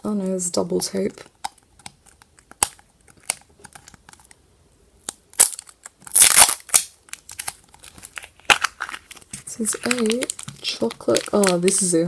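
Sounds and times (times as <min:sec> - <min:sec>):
tape crinkling: 0:00.9 - 0:04.4, 0:05.0 - 0:12.0
tape peeling off plastic: 0:05.0 - 0:11.8.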